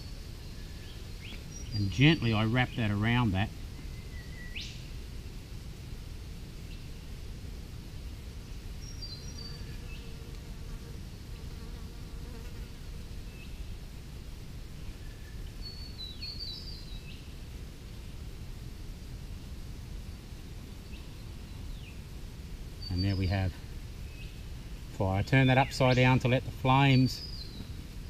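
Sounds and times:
flying insect buzzing: 9.2s - 13.2s.

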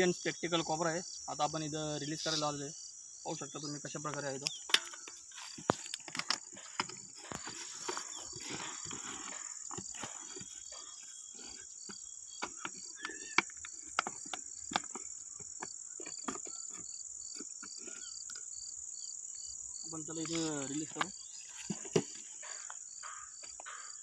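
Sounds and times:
high-pitched insect chorus: 0.0s - 24.0s
insect chirping in pulses: 0.0s - 24.0s
plastic jar being handled: 4.0s - 18.6s, 19.8s - 23.8s.

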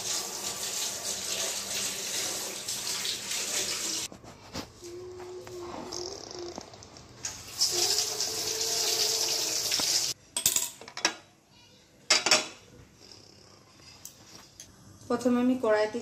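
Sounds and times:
kitchen tap water running: 0.0s - 4.1s, 7.2s - 10.2s.

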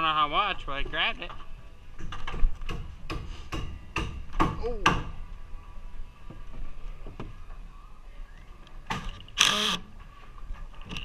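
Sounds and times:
impact driver driving screw into wood: 8.9s - 9.9s.

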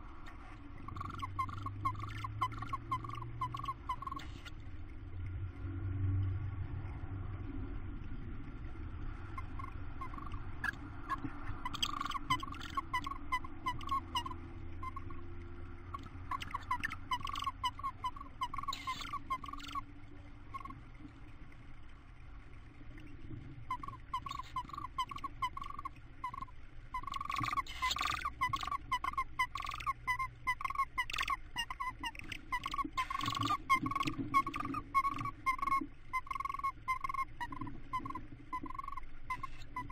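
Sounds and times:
low steady hum: 0.0s - 39.9s
owls chittering: 0.8s - 4.5s, 9.4s - 15.2s, 15.9s - 19.8s, 20.5s - 20.8s, 23.7s - 39.9s.

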